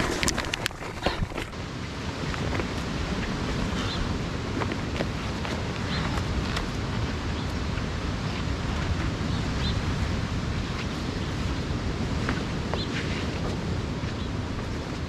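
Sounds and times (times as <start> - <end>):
wind on microphone: 0.0 - 15.0.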